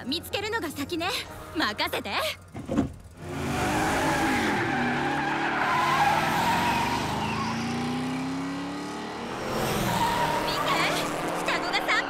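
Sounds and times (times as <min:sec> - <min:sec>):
cartoon car engine revving: 0:03.2 - 0:12.0.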